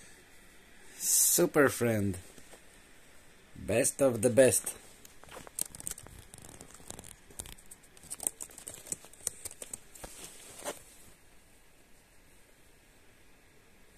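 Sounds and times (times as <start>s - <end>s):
rustling of bedding and clothing: 2.1s - 3.2s, 4.6s - 12.0s.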